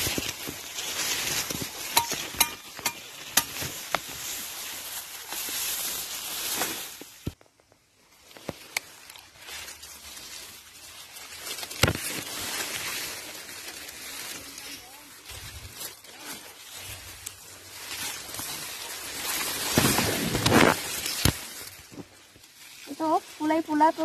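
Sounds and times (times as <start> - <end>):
corn leaves rustling: 0.0 - 24.0
stalks snapping: 19.7 - 21.8.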